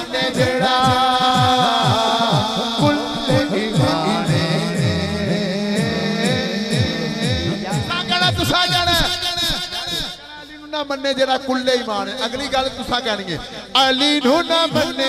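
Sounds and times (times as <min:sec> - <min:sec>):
deep drum beat: 0:00.0 - 0:09.2
man singing through loudspeakers: 0:00.0 - 0:15.0.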